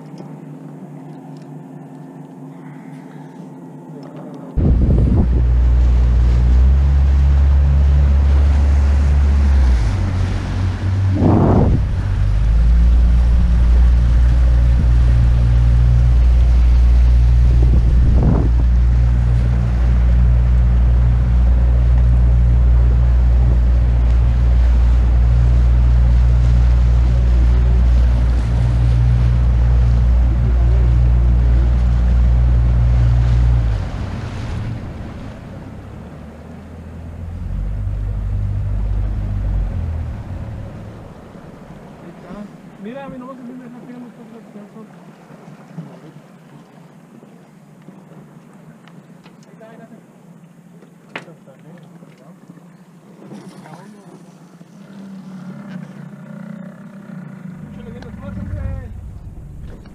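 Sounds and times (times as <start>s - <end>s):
boat motor droning: 0.0s - 59.9s
water noise: 0.0s - 59.9s
wind noise: 4.6s - 35.8s.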